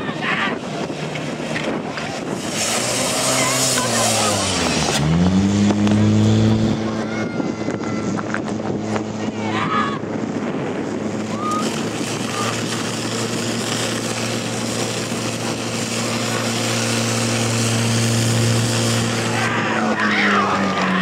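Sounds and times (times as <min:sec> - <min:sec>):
pump engine droning: 0:00.0 - 0:21.0.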